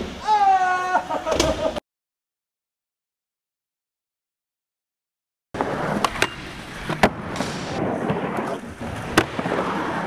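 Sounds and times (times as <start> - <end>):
skateboard wheels rolling on concrete: 5.6 - 10.0.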